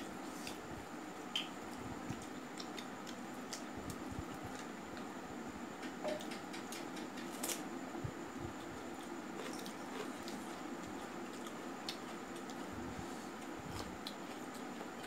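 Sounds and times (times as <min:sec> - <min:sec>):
chewing and wet mouth clicks: 0:02.1 - 0:03.7, 0:11.0 - 0:12.6.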